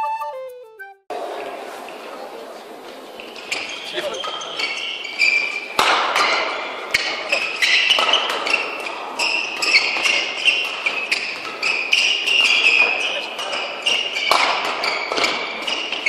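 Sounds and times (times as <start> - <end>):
shoes squeaking on court floor: 1.1 - 16.0
rackets hitting shuttlecock: 3.2 - 16.0.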